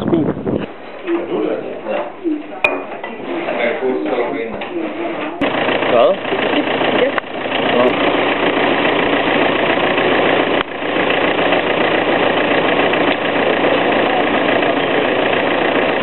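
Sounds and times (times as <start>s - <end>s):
car engine idling: 5.4s - 16.0s.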